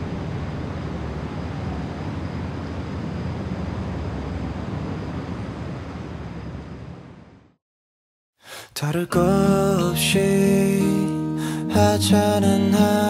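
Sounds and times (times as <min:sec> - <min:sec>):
distant road traffic rumble: 0:00.0 - 0:07.5.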